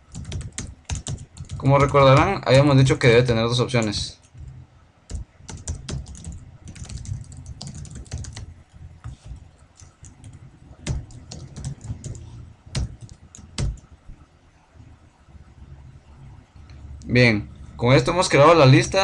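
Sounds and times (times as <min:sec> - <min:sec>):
typing on computer keyboard: 0:00.1 - 0:02.7, 0:05.1 - 0:13.9.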